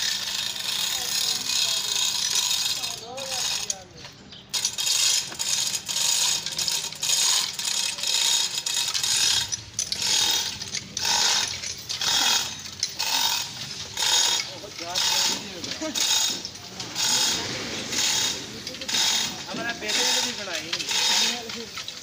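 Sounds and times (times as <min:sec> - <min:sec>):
chain rattling: 0:00.0 - 0:22.0
hoist ratchet clicking: 0:04.5 - 0:15.4, 0:16.0 - 0:22.0.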